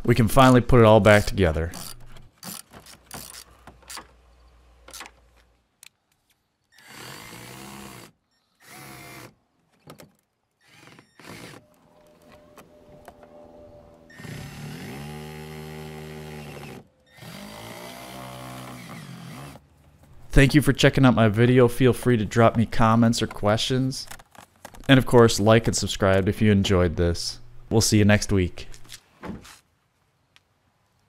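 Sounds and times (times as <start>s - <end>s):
cordless drill driving screws: 1.8s - 4.0s, 6.7s - 9.3s, 10.6s - 11.6s, 14.1s - 19.6s.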